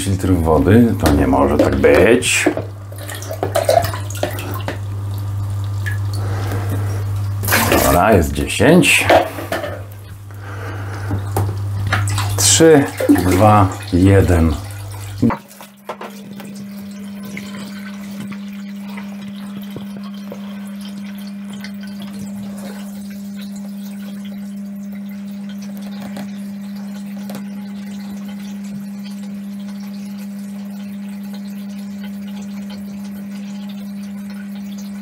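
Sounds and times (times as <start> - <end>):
water rushing: 0.0 - 23.4
filter pump electric hum: 0.0 - 35.0.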